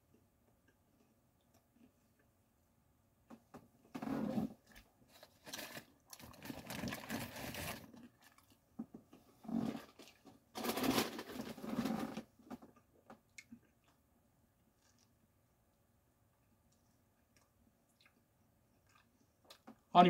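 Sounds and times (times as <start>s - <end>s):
paper wrapper crinkling: 5.1s - 8.3s.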